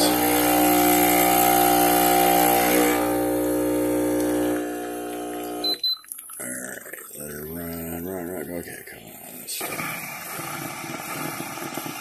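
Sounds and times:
espresso machine pump humming: 0.0s - 5.8s
high double beep: 5.6s - 6.0s.

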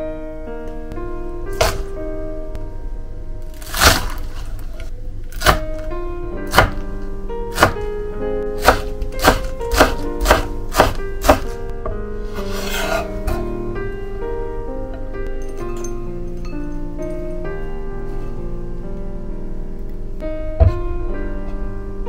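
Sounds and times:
background music: 0.0s - 22.0s
knife chopping on wooden board: 1.6s - 1.8s, 7.5s - 7.8s, 8.6s - 11.5s
knife scraping board: 12.3s - 13.2s.

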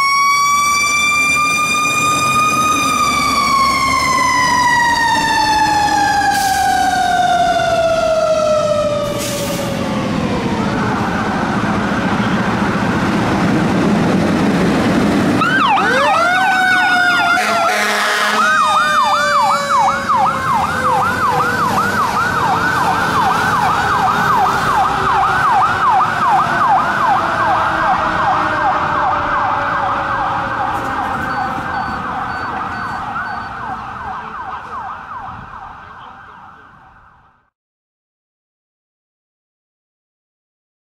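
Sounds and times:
mechanical siren wailing: 0.0s - 12.5s, 15.3s - 37.5s
diesel truck rumble: 0.0s - 37.2s
fast electronic siren yelp: 15.4s - 37.4s
horn blast: 17.2s - 18.8s.

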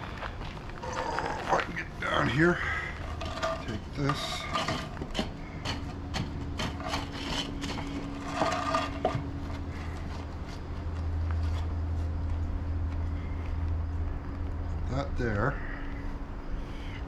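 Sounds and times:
steady low hum: 0.0s - 17.0s
wooden boards scraping and knocking: 2.7s - 10.0s.

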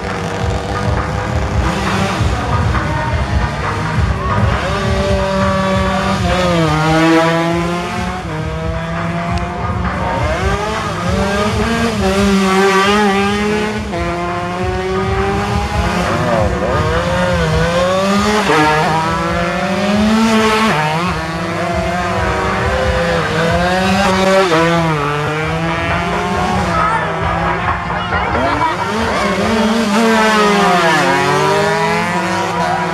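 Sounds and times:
two-stroke motorcycles revving: 0.0s - 32.9s.

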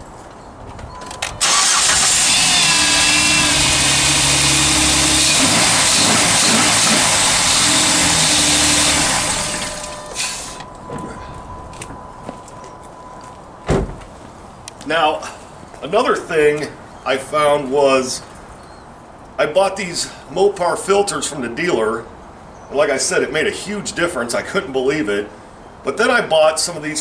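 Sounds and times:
car engine starting and idling: 1.3s - 11.1s.

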